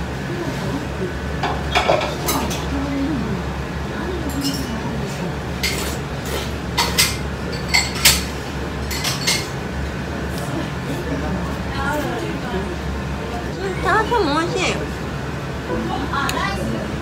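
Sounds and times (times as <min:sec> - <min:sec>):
utensils clinking against bowl: 0:04.2 - 0:04.9, 0:05.6 - 0:09.6.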